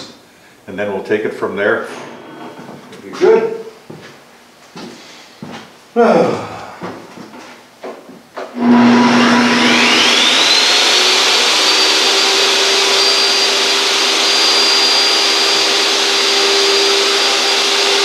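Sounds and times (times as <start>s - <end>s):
table saw cutting plywood: 8.6s - 18.0s.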